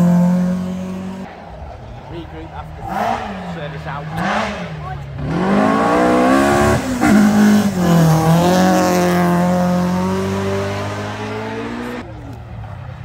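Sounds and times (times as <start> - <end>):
rally car engine accelerating: 2.7 - 12.0.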